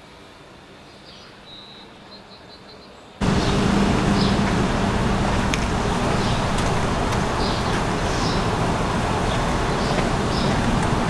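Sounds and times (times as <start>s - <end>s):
birds chirping: 1.0s - 11.0s
traffic din with low hum: 3.2s - 11.0s.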